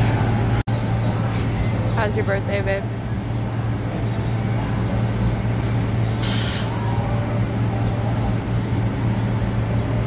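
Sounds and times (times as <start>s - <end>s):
low mechanical hum: 0.0s - 10.0s
short hiss of air: 6.2s - 6.8s.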